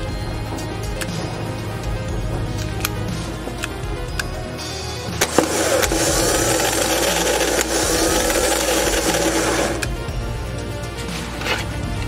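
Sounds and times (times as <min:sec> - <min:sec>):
starter motor whirring: 0:00.0 - 0:12.0.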